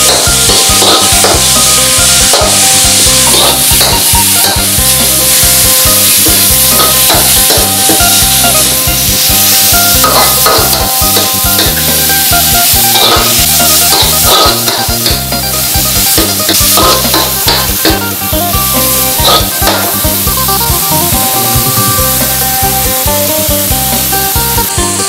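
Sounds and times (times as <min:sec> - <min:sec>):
metal spatula scraping wok: 0:00.0 - 0:22.6
meat sizzling in a wok: 0:00.0 - 0:25.0.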